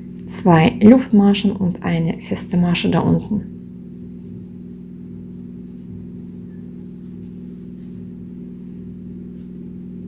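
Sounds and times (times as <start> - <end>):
low hum of held tones: 0.0 - 10.0
rustling of yarn: 3.9 - 8.2.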